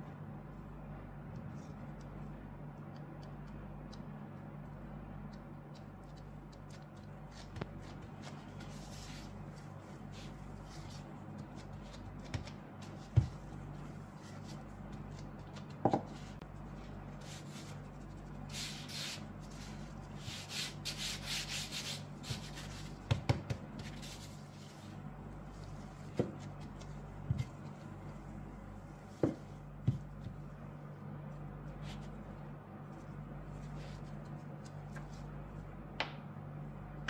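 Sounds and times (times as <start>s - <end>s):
steady low hum: 0.0s - 37.0s
gloved hands handling dough: 4.7s - 35.8s
brushy rubbing of flour on dough: 6.0s - 30.7s.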